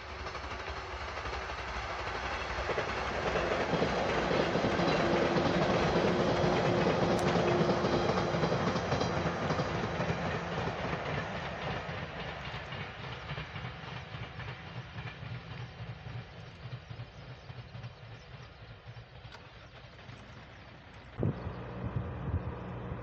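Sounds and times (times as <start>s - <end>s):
electric train passing: 0.0s - 23.0s
wheels clattering over rail joints: 0.3s - 17.2s.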